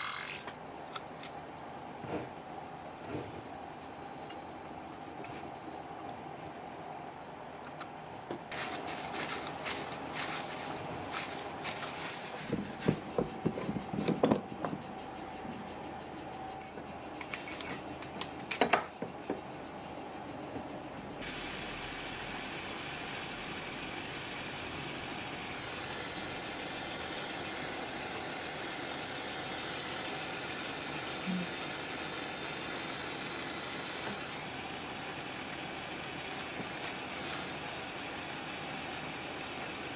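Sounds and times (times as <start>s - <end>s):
gas torch hissing: 0.0s - 0.5s, 8.5s - 13.3s, 21.2s - 39.9s.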